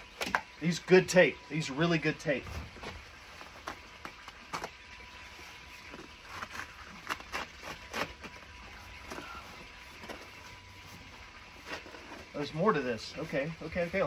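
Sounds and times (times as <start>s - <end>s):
knife cutting tape and cardboard: 6.0s - 8.5s.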